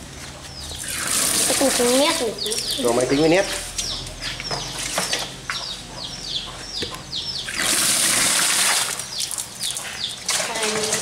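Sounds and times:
bird chirping: 0:00.3 - 0:10.6
water gushing and splashing: 0:00.8 - 0:02.2, 0:07.5 - 0:09.0.

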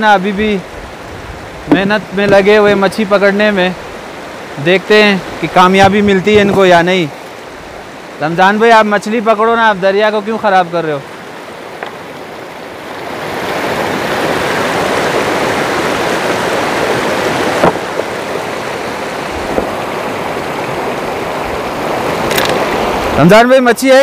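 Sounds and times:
stream rushing over rocks: 0:00.0 - 0:24.0
short knock: 0:01.7 - 0:02.4.

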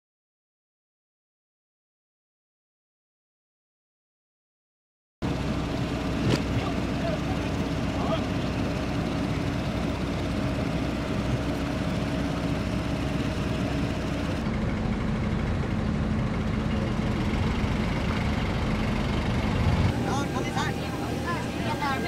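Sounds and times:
machinery engines humming: 0:05.2 - 0:22.0.

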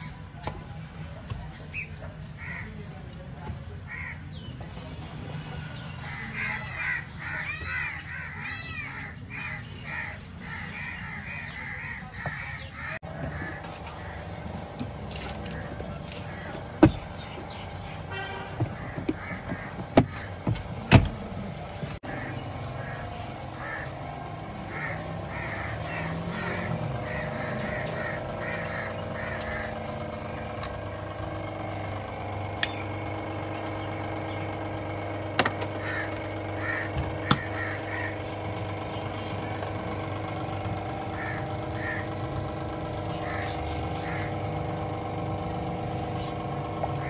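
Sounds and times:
birds calling: 0:00.0 - 0:47.0
steady low hum: 0:09.3 - 0:47.0.

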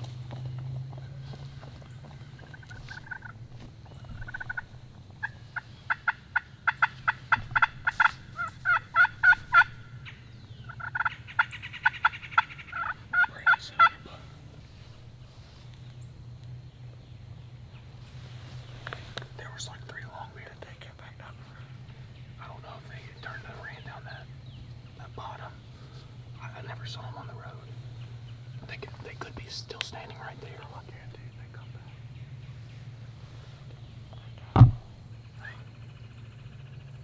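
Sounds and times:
turkey rattling gobble: 0:02.4 - 0:03.4, 0:04.0 - 0:14.0
turkey yelping: 0:02.4 - 0:03.4, 0:04.1 - 0:14.0.

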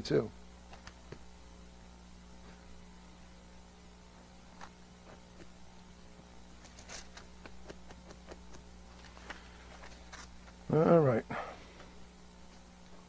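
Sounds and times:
low electrical hum: 0:00.0 - 0:13.0
pages being leafed through: 0:06.6 - 0:10.6.

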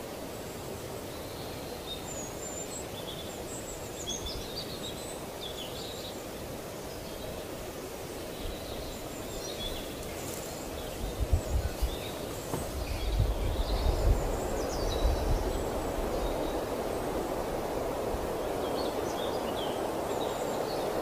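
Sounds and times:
outdoor background noise: 0:00.0 - 0:21.0
birds chirping: 0:08.2 - 0:21.0.

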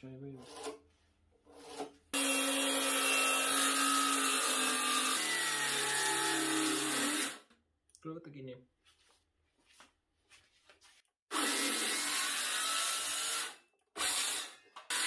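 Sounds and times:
circular saw cutting wood: 0:01.5 - 0:07.4, 0:11.3 - 0:15.0.

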